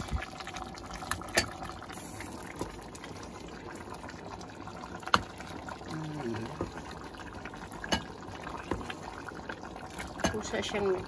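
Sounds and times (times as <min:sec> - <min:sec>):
stew bubbling in a pot: 0:00.0 - 0:11.0.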